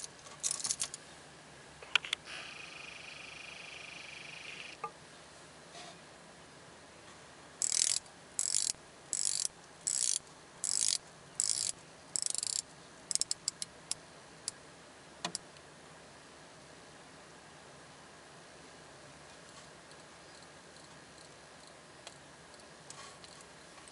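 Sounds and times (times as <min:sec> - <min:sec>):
watch bezel ratchet clicking: 0:07.6 - 0:13.7.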